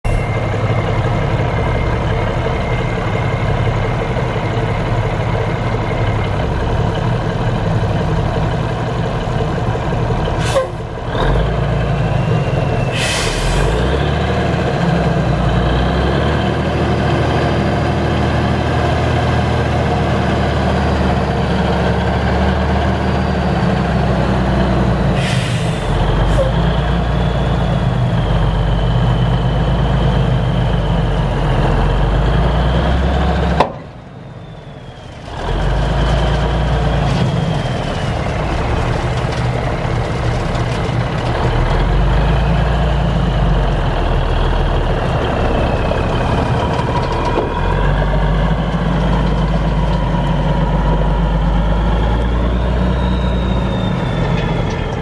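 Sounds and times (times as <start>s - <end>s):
diesel truck engine running: 0.0s - 55.0s
air brake hiss: 10.4s - 10.8s, 12.9s - 13.8s, 25.2s - 26.5s.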